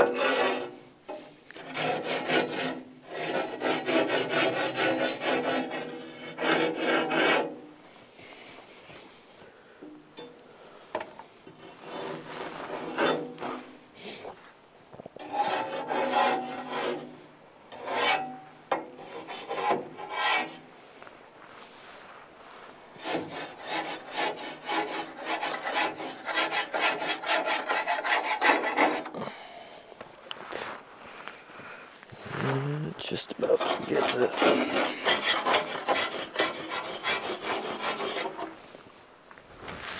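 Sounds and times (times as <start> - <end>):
metal rod scraping inside tubes: 0.0 - 7.5, 17.7 - 18.4, 23.0 - 29.1, 33.4 - 38.5.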